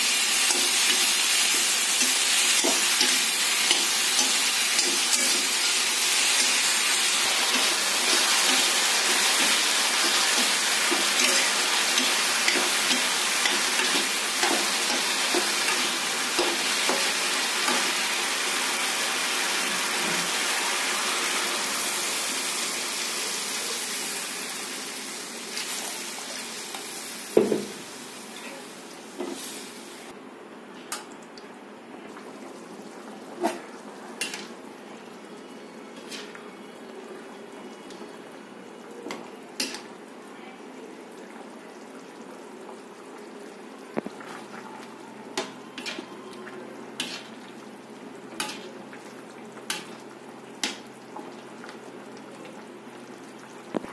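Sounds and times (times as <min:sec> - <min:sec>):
vegetables sizzling in oil: 0:00.0 - 0:30.1, 0:32.8 - 0:35.4, 0:45.2 - 0:53.9.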